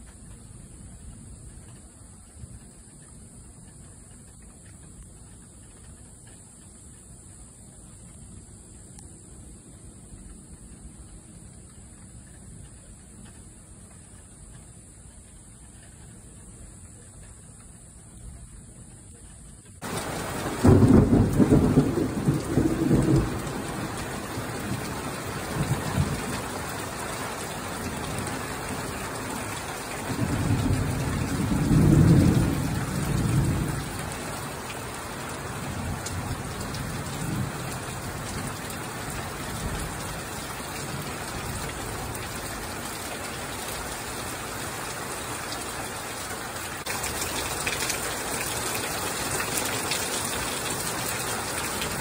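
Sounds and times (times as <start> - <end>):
steady rain: 0.0 - 52.0
thunder rumbling: 19.8 - 46.2.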